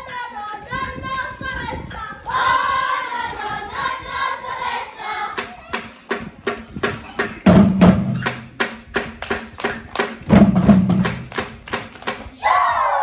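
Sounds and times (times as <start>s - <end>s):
loud chanted voices: 0.0s - 5.6s
children singing: 0.0s - 6.2s
rhythmic claps or body slaps: 7.2s - 12.4s.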